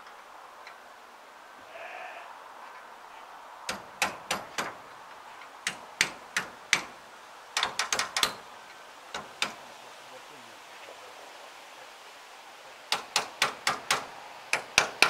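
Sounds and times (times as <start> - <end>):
hammer tapping on metal: 3.7 - 4.8, 5.6 - 7.0, 7.6 - 8.4, 9.1 - 9.6, 12.9 - 15.0.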